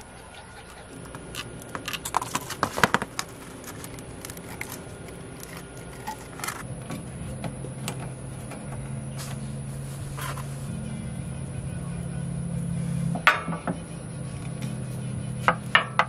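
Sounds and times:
low engine hum: 0.0s - 16.0s.

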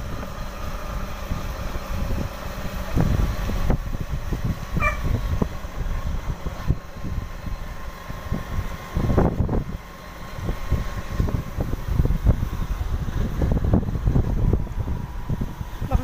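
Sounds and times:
motorcycle engine running: 0.0s - 16.0s
wind rumbling on microphone: 0.0s - 16.0s.

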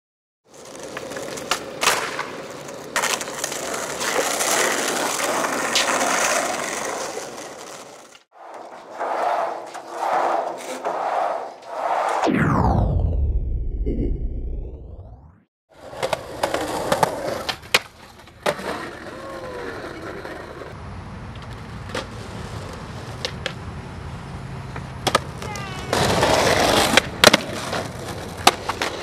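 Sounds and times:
skateboard wheels rolling on pavement: 0.4s - 12.1s, 15.7s - 29.0s
skateboard clacks: 0.5s - 9.8s, 15.8s - 23.7s, 24.7s - 29.0s
falling sweep: 8.4s - 15.5s.

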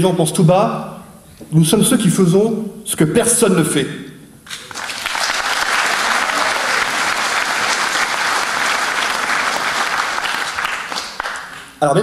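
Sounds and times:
audience applauding: 4.5s - 11.8s.

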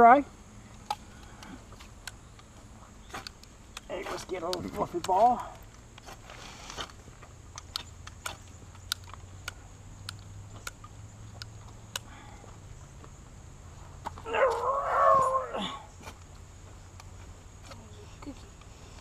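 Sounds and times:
high wavering cry: 14.2s - 16.0s.

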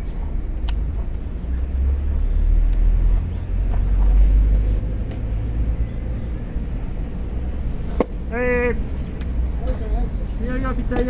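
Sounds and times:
faint distant clicks: 0.5s - 5.8s, 8.9s - 11.0s
bat hitting ball: 7.9s - 8.3s.

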